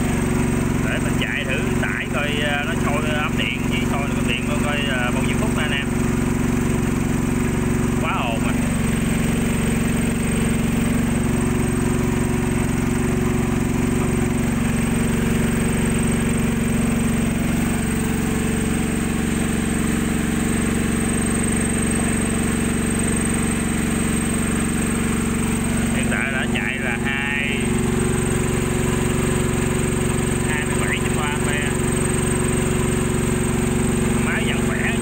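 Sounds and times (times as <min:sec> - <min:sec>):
petrol generator running: 0:00.0 - 0:35.0.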